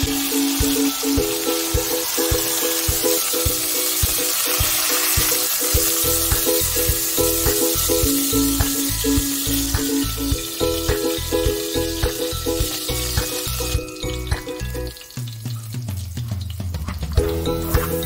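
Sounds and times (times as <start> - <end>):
background music with a beat: 0.0 - 18.0
oil sizzling in a pot: 0.0 - 18.0.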